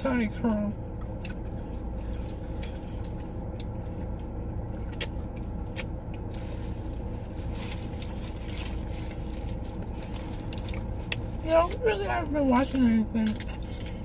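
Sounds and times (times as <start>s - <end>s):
car cabin rumble: 0.0s - 14.0s.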